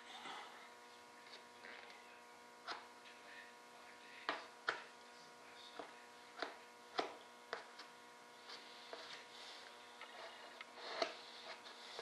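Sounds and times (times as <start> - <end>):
steady electrical hum: 0.0 - 12.0
spreader scraping filler: 8.4 - 12.0.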